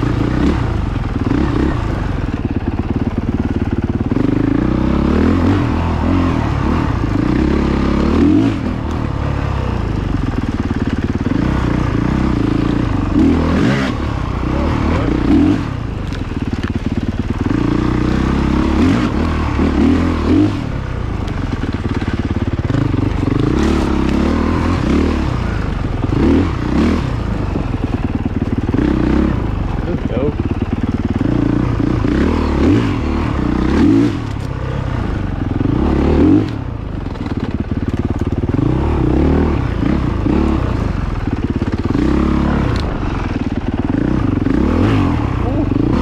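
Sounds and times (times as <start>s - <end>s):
dirt bike engine revving: 0.0s - 46.0s.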